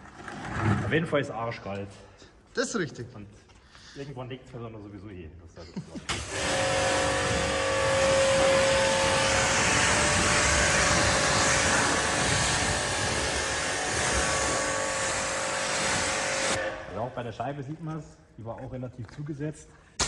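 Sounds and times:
pressure washer spraying: 6.1 - 16.8
faint motor whine: 6.2 - 16.7.

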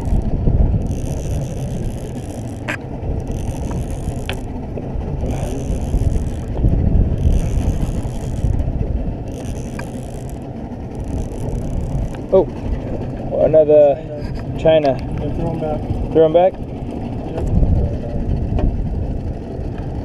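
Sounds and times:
fishing reel gears whirring: 0.0 - 14.0
low rumble: 0.0 - 20.0.

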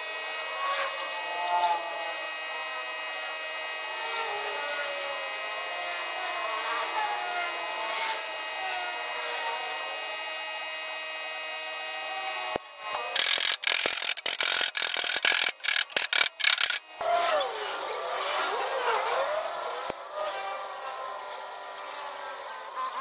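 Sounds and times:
torch click: 13.2 - 16.9.

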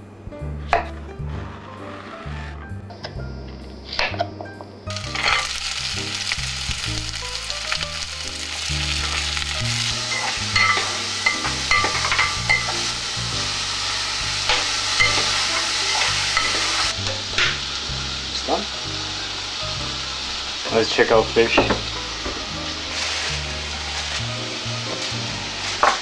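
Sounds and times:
vegetables sizzling in a pan: 4.9 - 26.0
utensil scraping a pan: 9.8 - 12.9, 21.6 - 26.0
utensil tapping a pan: 21.5 - 22.5.

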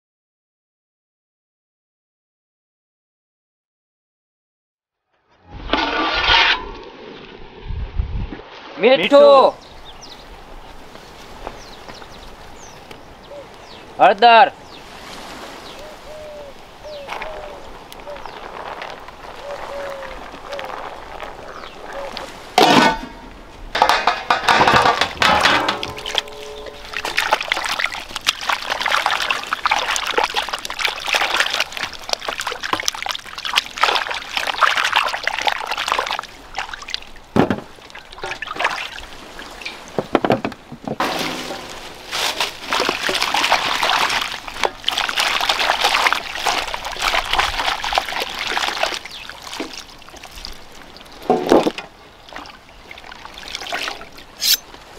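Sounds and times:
steel vessels clanking: 5.6 - 6.9, 22.6 - 30.1, 37.9 - 46.6, 54.4 - 54.7
water splashing in a bowl: 24.3 - 40.0, 41.0 - 54.6.

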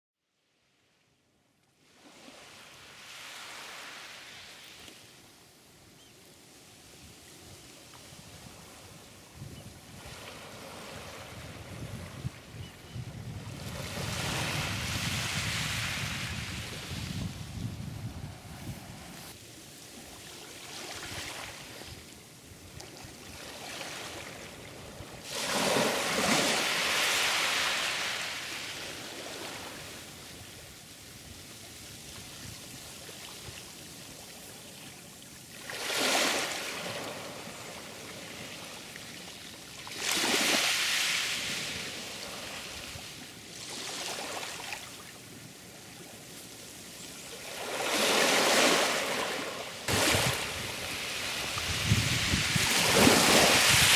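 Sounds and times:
sea waves breaking: 23.1 - 30.0, 47.3 - 53.9.

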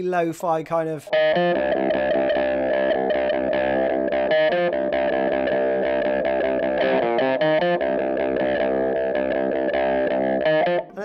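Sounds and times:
lo-fi electric guitar riff: 0.0 - 11.0.

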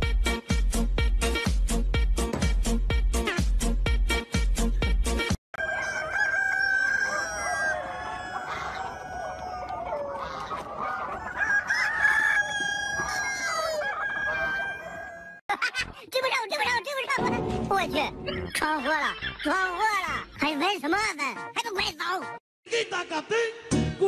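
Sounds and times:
chickens clucking: 5.6 - 15.3
rooster crowing: 5.6 - 15.4.

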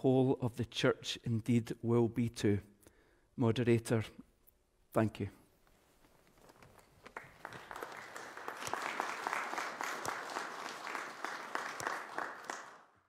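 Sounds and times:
applause in a large hall: 6.6 - 13.0.

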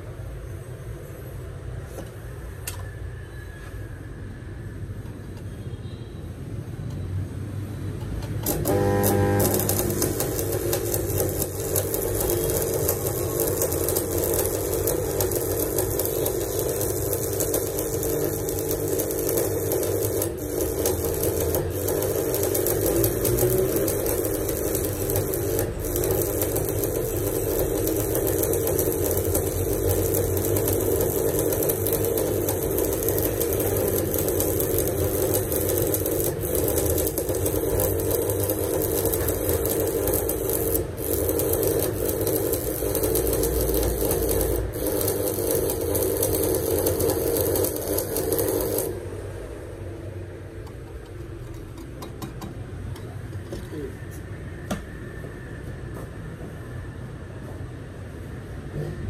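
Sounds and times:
welding arc crackling sizzle: 7.9 - 54.2.

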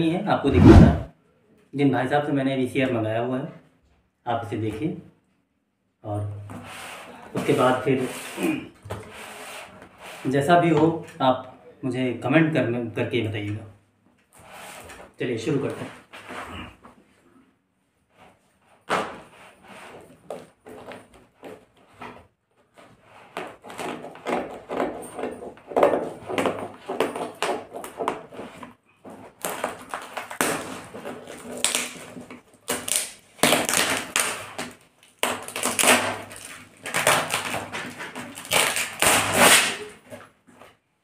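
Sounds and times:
plastic rustling and crinkling: 18.3 - 40.8
scissors cutting through tape: 32.7 - 39.9.

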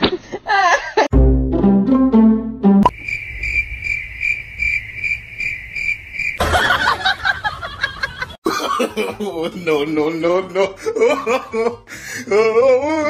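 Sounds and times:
low pitched musical notes: 1.1 - 2.9
cricket chirping trill: 2.9 - 7.8
noise like chuckling: 6.4 - 9.5.

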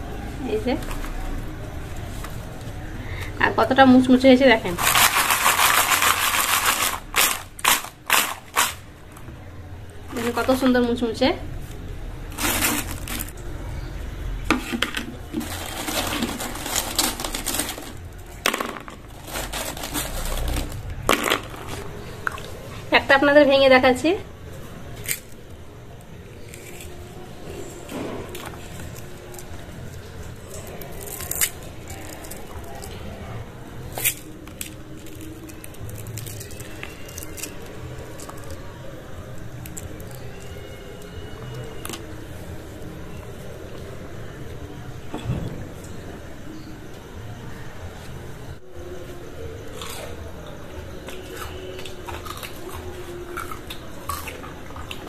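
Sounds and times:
fried snacks rustling in basket: 4.4 - 8.9, 11.7 - 13.4, 14.6 - 22.9
crunchy crust crackling: 14.6 - 22.8, 24.6 - 42.4.

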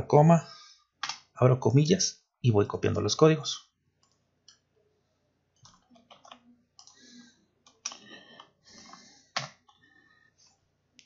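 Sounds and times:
computer mouse clicks: 4.0 - 4.6, 5.6 - 7.0.

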